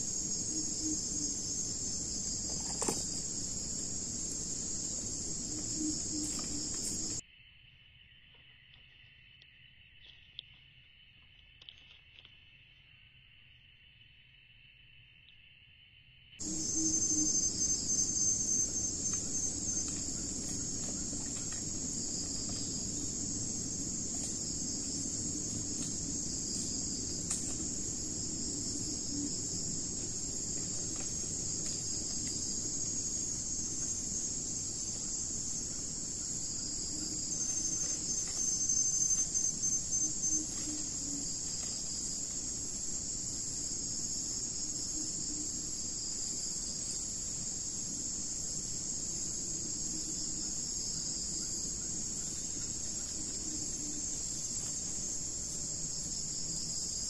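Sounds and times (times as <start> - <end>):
insect chorus pulsing: 0.0 - 57.0.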